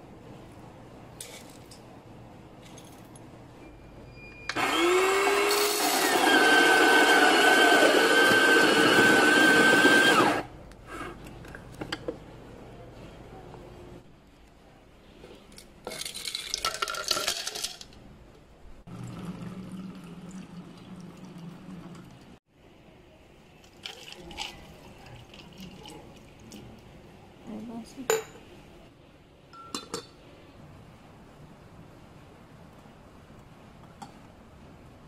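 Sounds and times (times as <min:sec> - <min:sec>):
ice cubes clinking in glass: 0:15.9 - 0:17.9.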